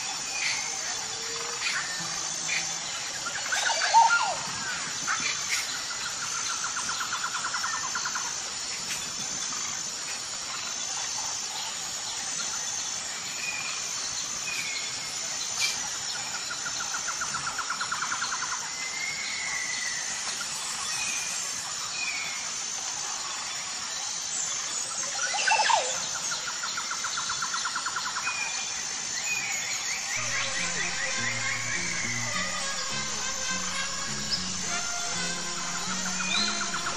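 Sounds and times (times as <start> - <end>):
sweeping bird call: 0.0 - 8.2, 29.3 - 36.9
high-pitched pulsing tone: 30.2 - 36.9.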